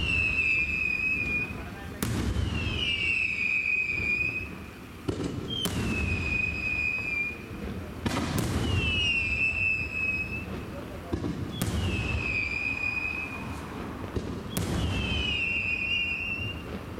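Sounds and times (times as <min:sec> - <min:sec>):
firework bursts cracking: 0:00.0 - 0:16.9
firework shells whistling: 0:00.0 - 0:16.9.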